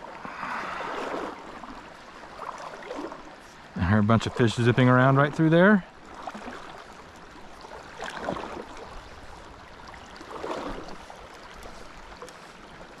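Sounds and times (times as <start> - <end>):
creek water rushing: 0.0 - 13.0
water swishes: 0.0 - 13.0.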